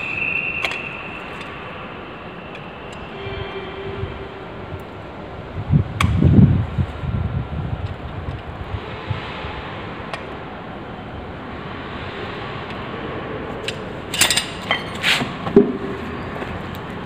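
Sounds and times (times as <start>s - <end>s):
steady background hiss: 0.0s - 17.0s
metal tools clinking: 14.1s - 15.0s.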